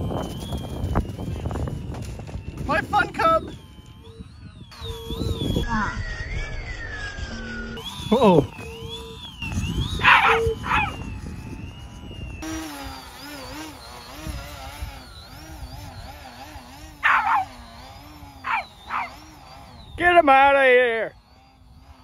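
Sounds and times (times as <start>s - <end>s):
steady wavering whine: 0.0s - 22.0s
dog barking: 17.0s - 17.5s, 18.4s - 19.1s.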